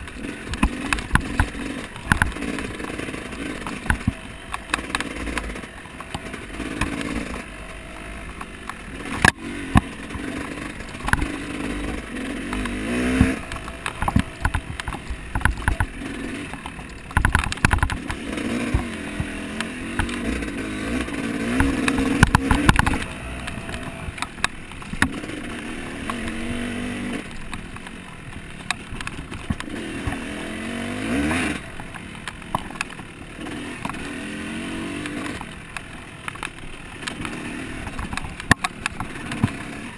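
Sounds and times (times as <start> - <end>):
knocks and rattles: 0.0 - 30.3
motorcycle engine revving: 0.0 - 39.9.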